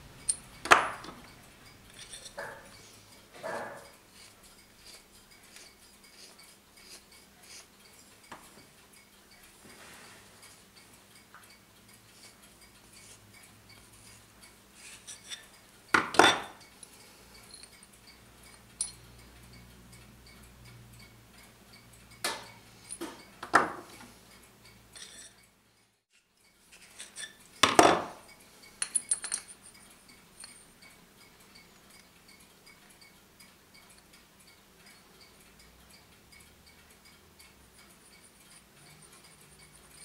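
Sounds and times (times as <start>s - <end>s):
metal tools clinking: 0.2s - 4.0s, 14.8s - 16.6s, 17.4s - 17.9s, 18.5s - 19.1s, 24.9s - 25.4s, 26.7s - 28.0s, 28.8s - 29.8s, 30.4s - 30.7s.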